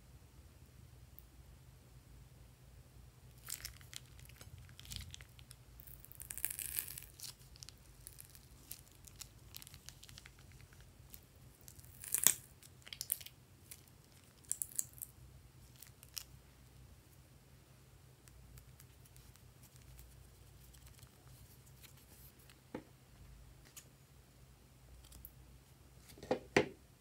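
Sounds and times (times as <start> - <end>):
plastic piping bag crinkling: 3.3 - 16.4.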